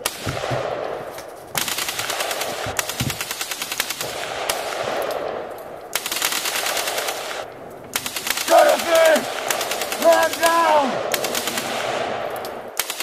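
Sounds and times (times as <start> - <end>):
automatic gunfire: 0.0 - 13.0.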